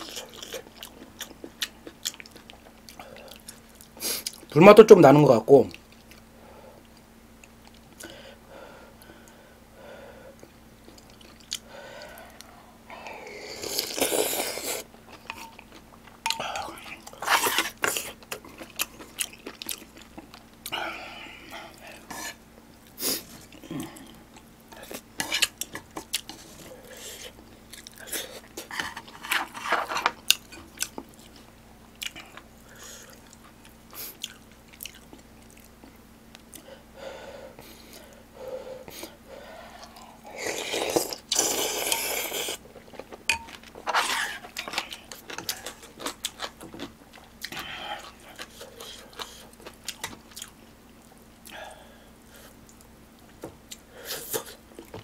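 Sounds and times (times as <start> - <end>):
person chewing and biting: 0.0 - 4.5, 13.5 - 20.8, 23.2 - 36.6, 39.8 - 51.6.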